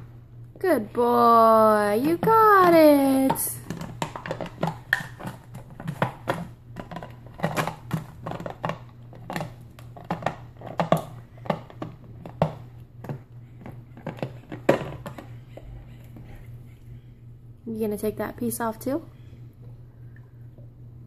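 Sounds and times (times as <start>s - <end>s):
dog chewing plastic bottle: 1.9s - 16.3s.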